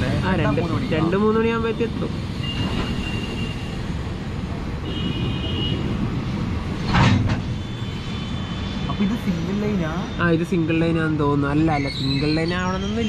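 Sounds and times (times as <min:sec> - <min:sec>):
train clatter: 0:05.1 - 0:07.6.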